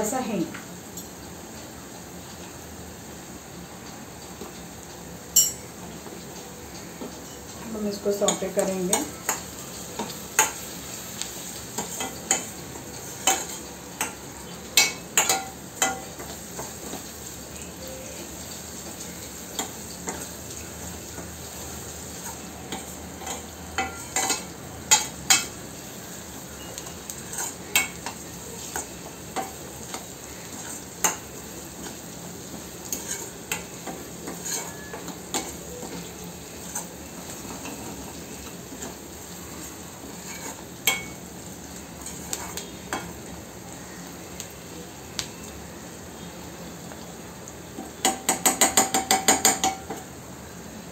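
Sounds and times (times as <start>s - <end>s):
onions sizzling in oil: 0.0s - 50.9s
spoon clinking and scraping pan: 5.4s - 5.7s, 11.8s - 14.2s, 14.8s - 16.7s, 22.2s - 25.6s, 26.6s - 32.0s, 32.8s - 39.0s, 39.6s - 41.2s.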